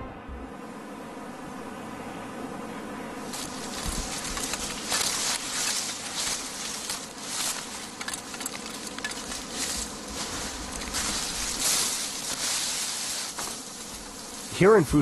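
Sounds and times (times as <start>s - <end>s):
sugarcane rustling and crackling: 3.2s - 14.9s
cane stalks snapping: 3.3s - 14.5s.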